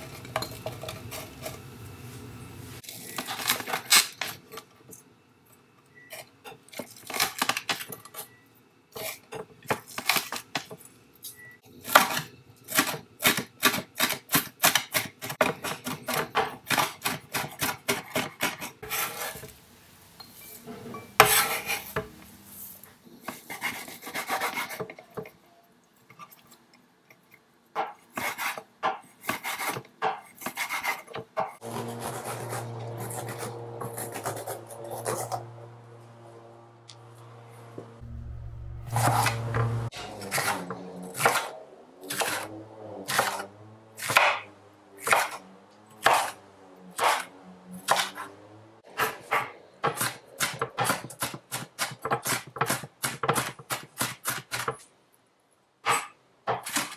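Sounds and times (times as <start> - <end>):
knife chopping on wooden board: 21.2 - 22.1.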